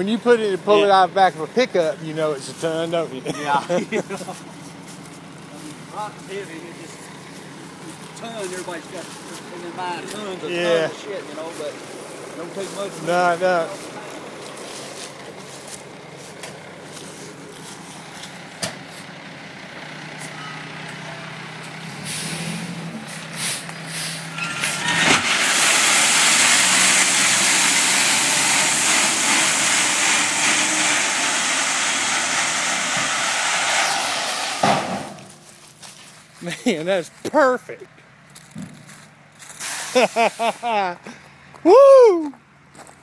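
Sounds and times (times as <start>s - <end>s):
truck engine running: 0.0s - 43.0s
gravel sliding out of truck bed: 21.8s - 36.1s, 38.4s - 40.6s.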